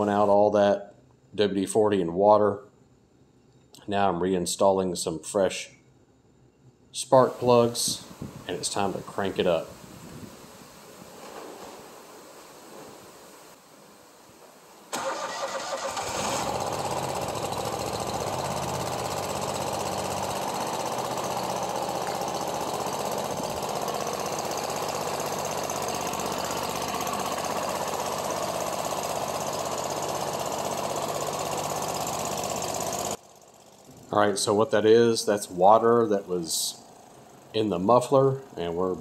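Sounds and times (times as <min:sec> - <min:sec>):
mower engine cranking and running: 0:14.9 - 0:39.0.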